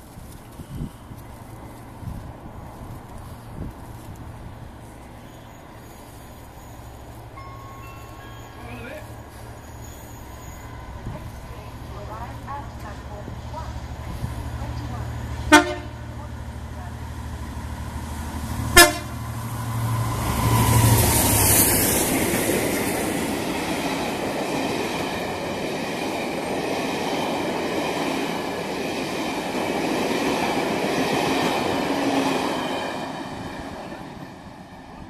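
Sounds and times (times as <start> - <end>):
diesel locomotive engine: 0.0 - 35.0
short train horn toot: 15.5 - 16.1, 18.8 - 19.1.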